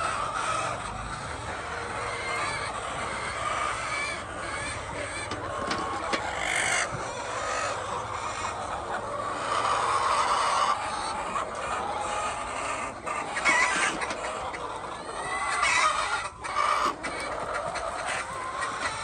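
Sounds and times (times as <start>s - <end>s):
hens clucking: 0.0s - 19.0s.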